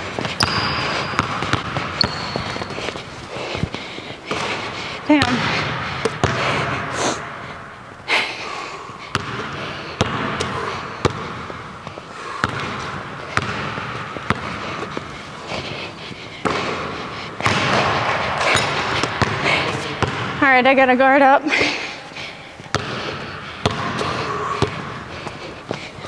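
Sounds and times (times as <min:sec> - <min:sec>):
basketball bouncing on wooden floor: 0:00.2 - 0:03.1, 0:05.2 - 0:06.5, 0:09.1 - 0:11.6, 0:12.4 - 0:14.6, 0:17.4 - 0:20.4, 0:23.6 - 0:25.0.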